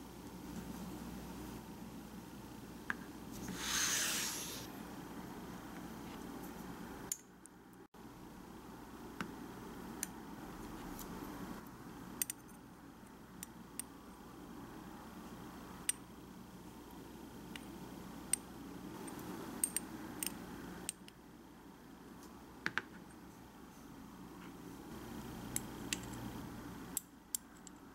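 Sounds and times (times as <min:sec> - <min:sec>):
tweezers clicking on ceramic dishes: 0:12.2 - 0:12.5.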